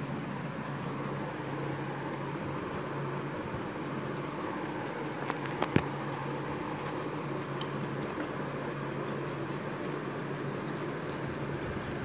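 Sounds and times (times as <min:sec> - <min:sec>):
low hum and hiss: 0:00.0 - 0:12.0.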